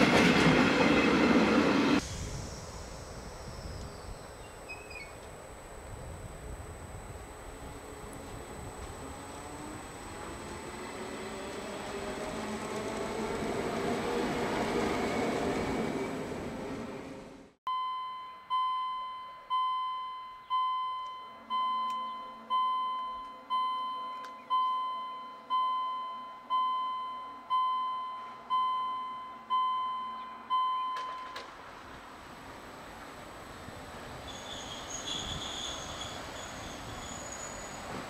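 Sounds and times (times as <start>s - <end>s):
train running: 0.0s - 17.5s, 31.0s - 38.0s
level crossing warning bell: 17.7s - 31.4s.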